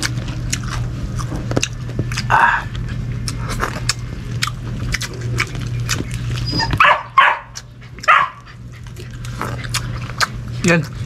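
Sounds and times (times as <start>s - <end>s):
dog barking: 6.6s - 8.5s.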